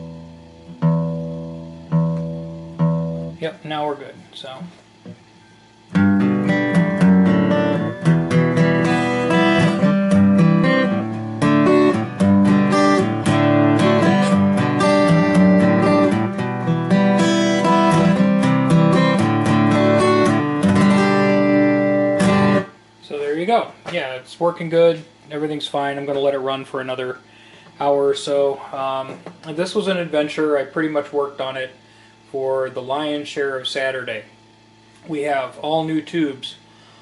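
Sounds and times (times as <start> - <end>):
guitar strumming and picking: 0.0 - 3.7, 4.9 - 23.0.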